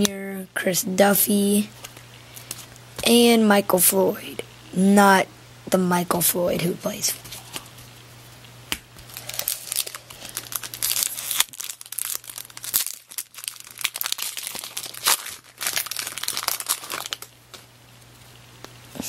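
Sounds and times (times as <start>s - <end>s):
wrapper torn and crinkled: 9.0s - 17.7s.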